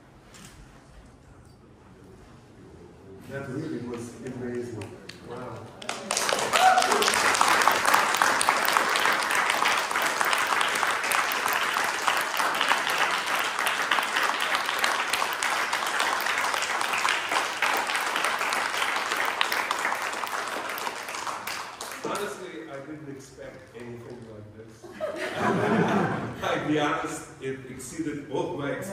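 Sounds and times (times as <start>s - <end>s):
audience applauding: 4.4s - 22.6s.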